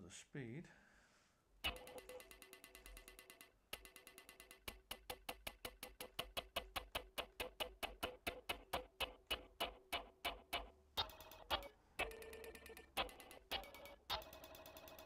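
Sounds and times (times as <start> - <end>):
repeating metallic spoon pings: 1.7 - 5.2, 11.0 - 15.0.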